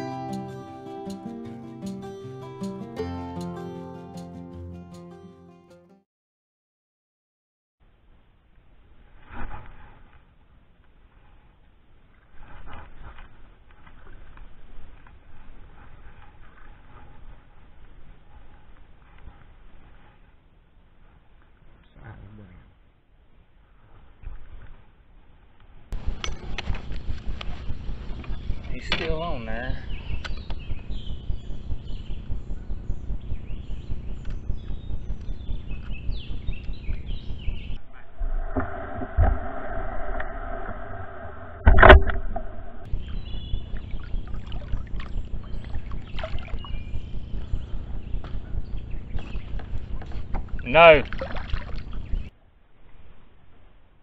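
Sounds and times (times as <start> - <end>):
fast low thumping: 26.0 - 40.9
low handling noise: 26.0 - 51.0
wild birds chirping: 26.4 - 38.1, 42.8 - 52.3.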